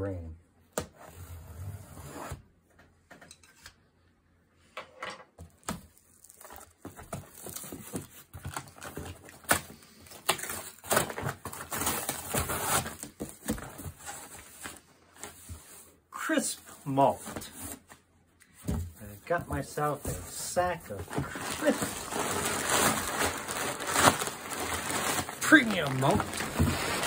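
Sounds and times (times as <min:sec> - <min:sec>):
cardboard box being opened: 0:21.0 - 0:27.0
packing tape scraping: 0:21.2 - 0:27.0.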